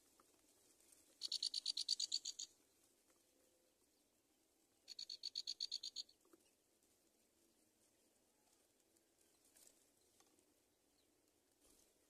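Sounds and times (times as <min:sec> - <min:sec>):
nestlings chirping: 0:01.2 - 0:02.6, 0:04.9 - 0:06.2.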